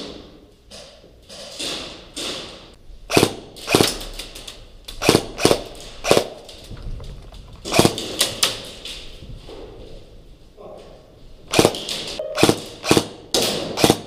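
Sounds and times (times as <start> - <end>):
airsoft gun shots: 3.1 - 4.0, 11.5 - 14.0.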